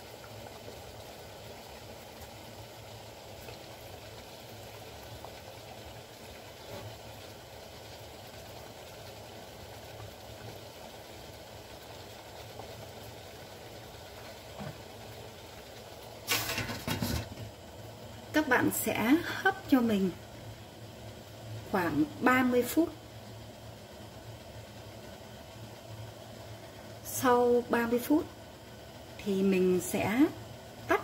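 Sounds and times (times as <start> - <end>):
water boiling in a pot: 0.0 - 31.0
metal lid clatter: 16.3 - 17.4.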